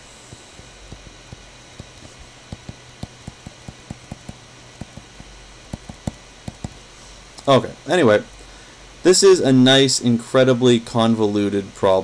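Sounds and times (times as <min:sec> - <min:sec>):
faint steady hum: 0:00.0 - 0:12.0
stylus clicking on tablet screen: 0:01.8 - 0:06.8.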